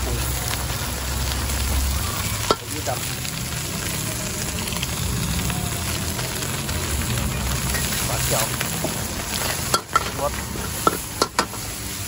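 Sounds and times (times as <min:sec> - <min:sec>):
food sizzling in a wok: 0:00.0 - 0:12.0
metal spatula scraping wok: 0:07.4 - 0:12.0
spatula knocking wok: 0:08.8 - 0:11.6.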